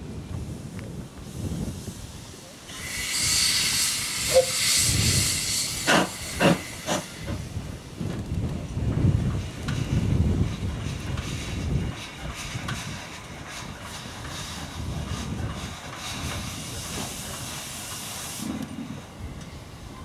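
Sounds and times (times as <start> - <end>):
steady hiss of steam: 0.1 - 20.0
steam locomotive exhaust beats: 0.1 - 20.0
higher steam hiss: 0.4 - 20.0.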